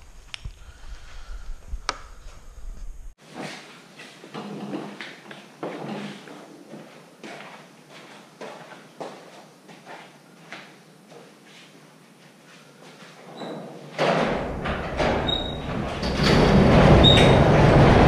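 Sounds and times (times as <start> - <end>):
garage door rumbling rattle: 13.9 - 18.0
metallic squeaks: 14.6 - 18.0.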